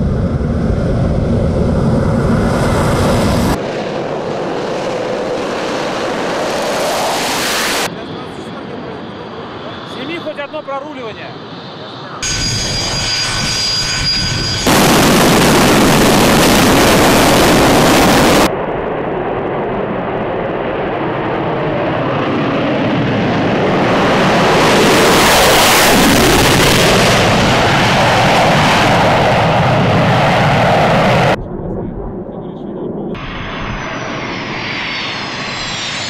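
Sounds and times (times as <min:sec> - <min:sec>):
jet turbines whining: 0:00.0 - 0:36.0
loud jet engine at high power: 0:00.0 - 0:36.0.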